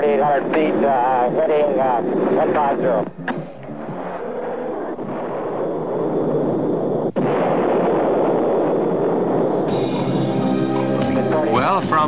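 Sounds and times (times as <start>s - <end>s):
explosion heavy roar: 4.0s - 10.2s.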